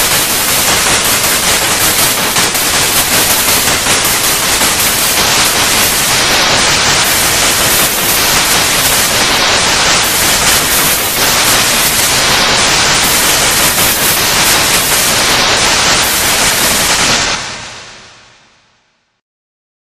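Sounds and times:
tv static hiss: 0.0 - 19.2.

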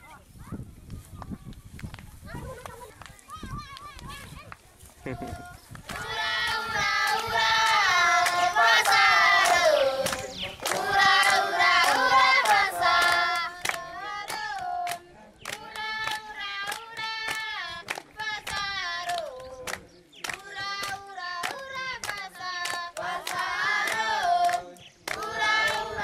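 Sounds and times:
hands clapping: 0.9 - 26.0
children singing: 5.1 - 17.6, 20.4 - 26.0.

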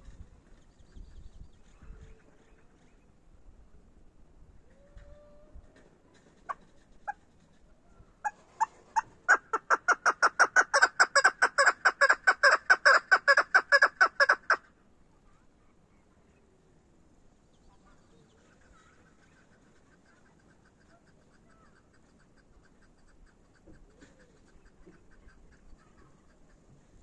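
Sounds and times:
partridge calling: 8.2 - 14.6.

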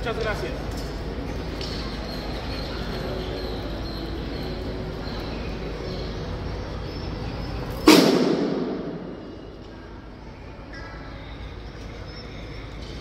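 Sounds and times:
open-air background noise: 0.0 - 13.0
loud crash: 7.8 - 9.4.

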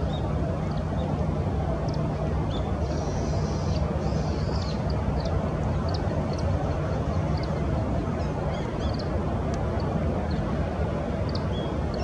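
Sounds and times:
distant traffic rumble: 0.0 - 12.0.

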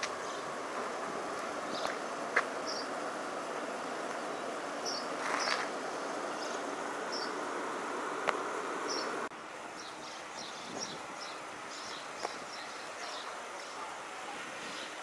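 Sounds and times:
steady background hum: 0.0 - 9.3.

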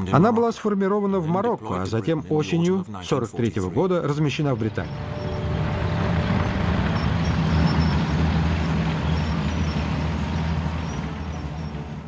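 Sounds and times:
tank engine rumble: 4.5 - 12.0.

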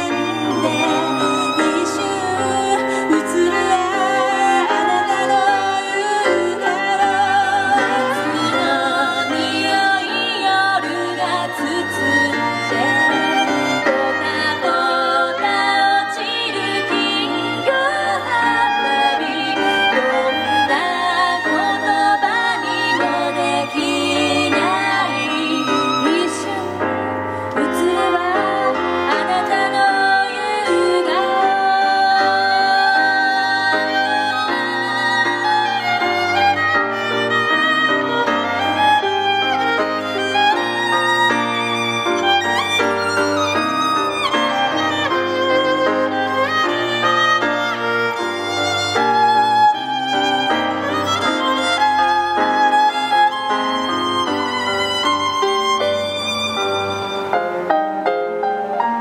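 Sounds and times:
woman singing: 0.0 - 36.5
digital piano: 0.0 - 59.0
violin: 0.0 - 59.0.

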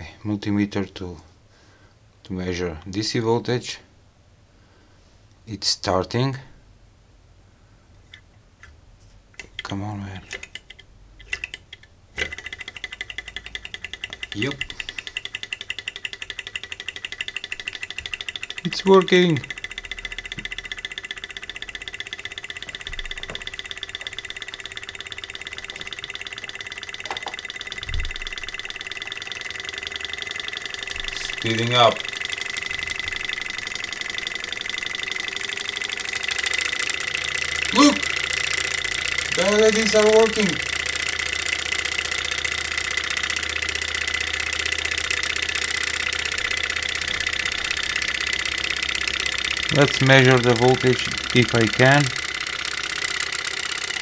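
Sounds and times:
steady motor whine: 12.2 - 54.0
stirling engine clatter: 12.2 - 54.0.

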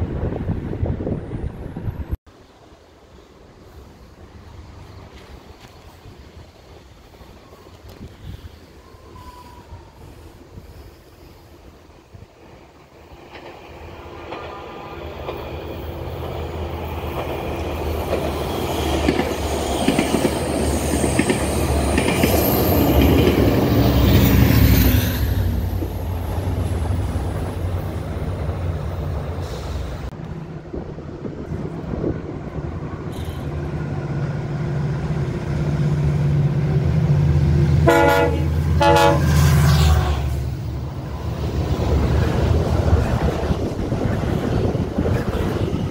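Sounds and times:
train wheels on rails: 3.3 - 45.9
train horn blasts: 37.8 - 40.4.

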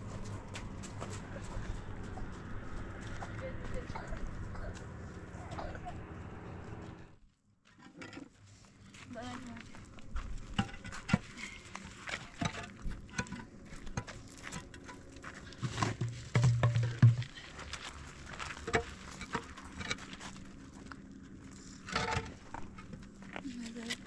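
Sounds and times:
concrete blocks knocking and scraping: 7.7 - 8.5, 10.2 - 20.5, 21.6 - 24.0
crunches on gravel: 8.7 - 24.0.

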